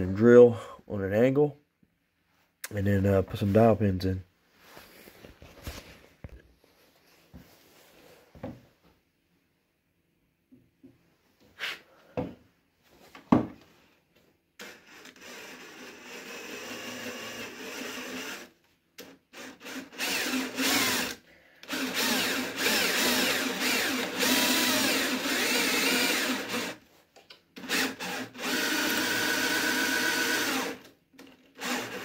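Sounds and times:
cordless drill boring into wood: 14.6s - 26.8s, 27.6s - 32.0s.

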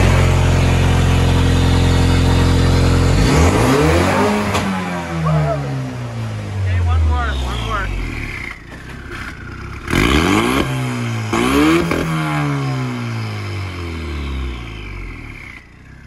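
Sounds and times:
car engine revving: 0.0s - 16.0s
high turbo whine: 0.0s - 16.0s.

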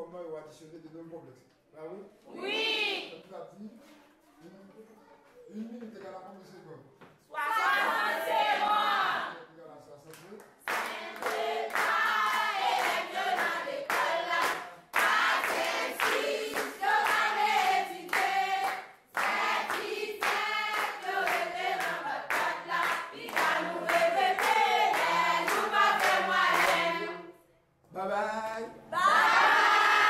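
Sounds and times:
clapping in time: 10.1s - 17.2s.

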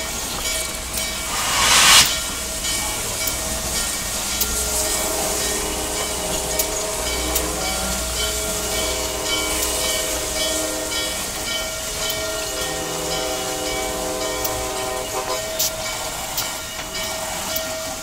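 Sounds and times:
steam locomotive hissing steam: 1.0s - 3.4s, 4.0s - 18.0s
steady tones: 1.2s - 2.6s.

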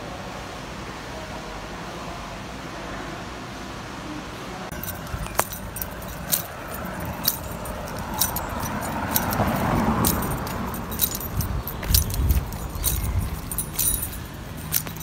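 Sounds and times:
footsteps on paved ground: 4.7s - 15.0s.

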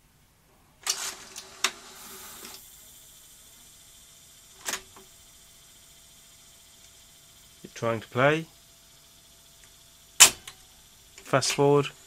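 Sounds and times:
faint steady hiss: 0.0s - 12.0s
mechanical rustle: 0.8s - 2.8s.

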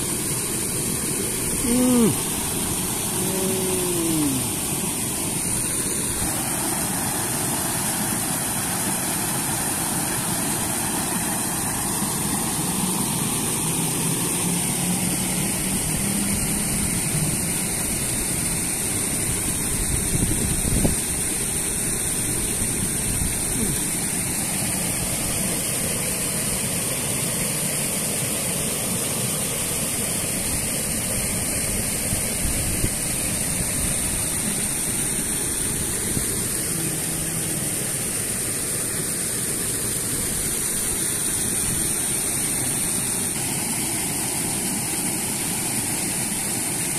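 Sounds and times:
river water rushing: 0.0s - 20.2s, 20.8s - 46.9s.

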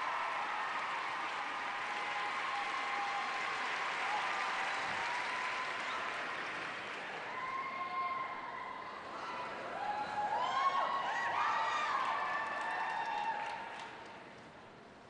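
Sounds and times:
audience applauding: 0.0s - 8.0s, 9.8s - 14.2s.

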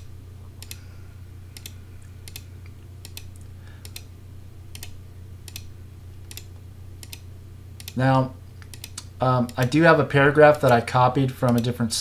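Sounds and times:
steady low hum: 0.0s - 12.0s
computer mouse clicks: 0.6s - 0.8s, 1.6s - 4.1s, 4.7s - 5.7s, 6.3s - 7.2s, 7.8s - 8.0s, 8.6s - 9.8s, 11.4s - 11.7s.

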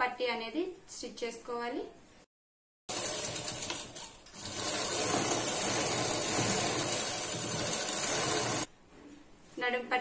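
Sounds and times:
sewing machine stitching: 2.9s - 8.7s.

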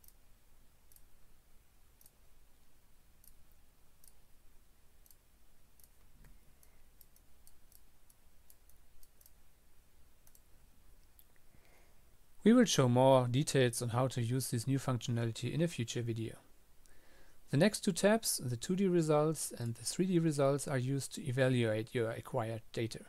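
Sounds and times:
low steady hum: 0.0s - 23.0s
computer mouse clicks: 0.9s - 1.1s, 10.2s - 11.4s.

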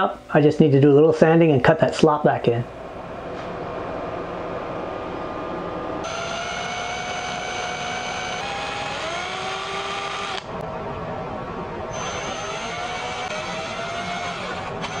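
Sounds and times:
rotary tool motor whining: 6.0s - 10.5s, 11.9s - 15.0s.

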